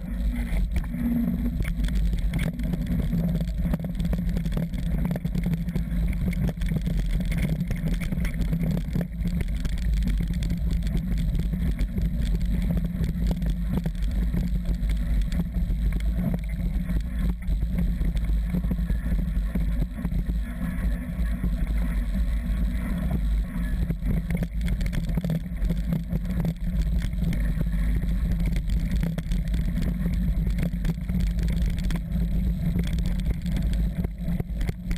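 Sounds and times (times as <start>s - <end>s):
wind rumble on microphone: 0.0s - 34.9s.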